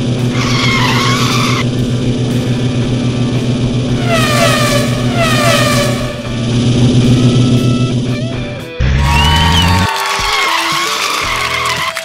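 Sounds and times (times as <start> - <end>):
race car engine drone: 0.0 - 9.9
tyre screech: 0.3 - 1.6.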